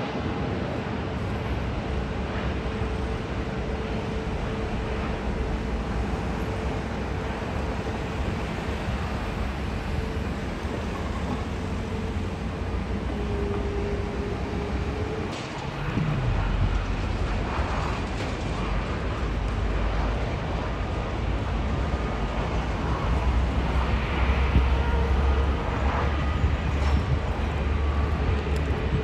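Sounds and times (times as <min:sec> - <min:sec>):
jet engines whining on landing: 0:00.0 - 0:29.0.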